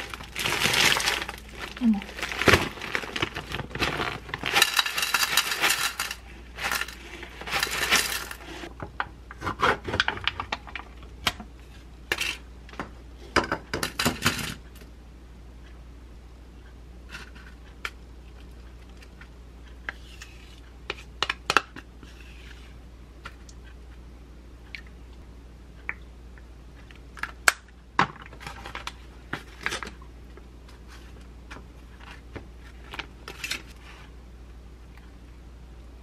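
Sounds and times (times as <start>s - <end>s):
plastic wrapper crinkling: 0.0s - 8.5s.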